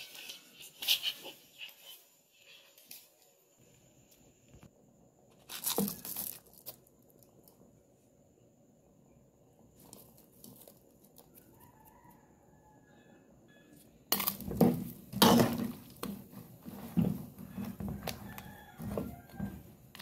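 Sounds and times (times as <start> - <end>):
metal spoon stirring in pot: 14.1 - 20.0.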